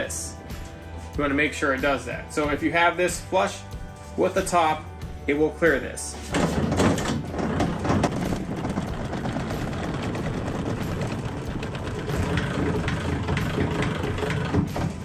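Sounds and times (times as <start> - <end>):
hand crank grinding: 6.5 - 15.0.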